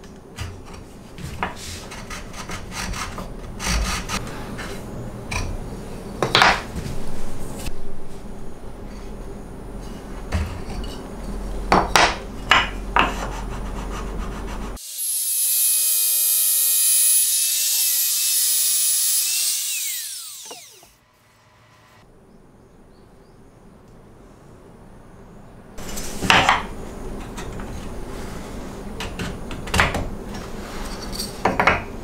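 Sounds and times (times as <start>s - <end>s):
trim router whining: 14.8s - 22.0s.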